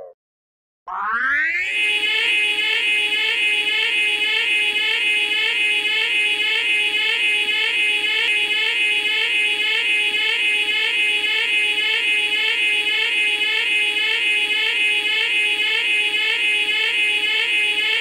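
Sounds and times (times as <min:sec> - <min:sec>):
siren warbling: 0:00.9 - 0:07.2.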